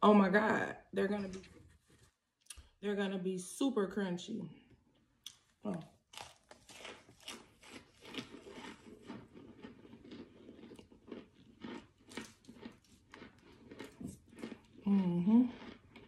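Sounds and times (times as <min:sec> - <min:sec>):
dry crunching bites: 0:05.3 - 0:14.8.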